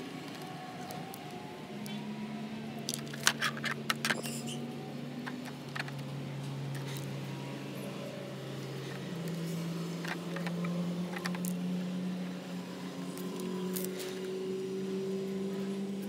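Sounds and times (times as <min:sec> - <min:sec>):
clicks and knocks of tools: 0:02.8 - 0:04.6, 0:10.0 - 0:11.6.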